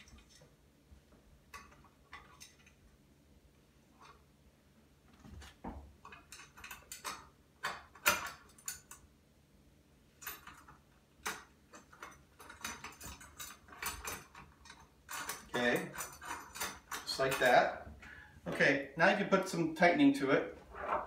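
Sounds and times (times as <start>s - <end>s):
metal hardware clicking and clinking: 1.5s - 2.8s, 6.0s - 9.1s, 10.2s - 17.7s.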